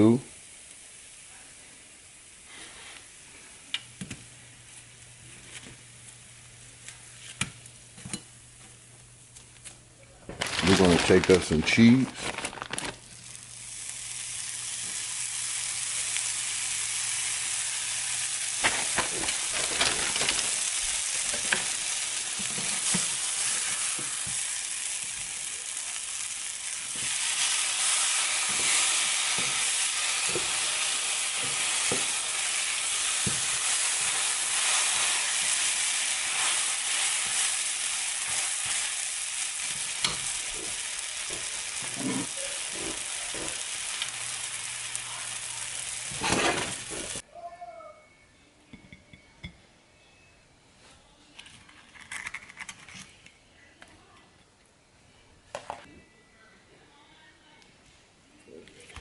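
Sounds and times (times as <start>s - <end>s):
sandwiches sizzling in pan: 0.0s - 9.6s, 10.3s - 47.2s.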